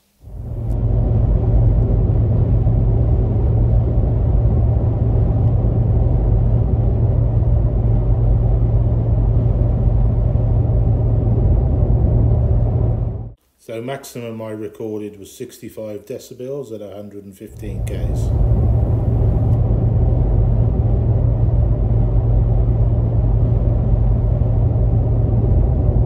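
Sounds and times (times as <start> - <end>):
tyre and road noise in cabin: 17.6 - 26.0.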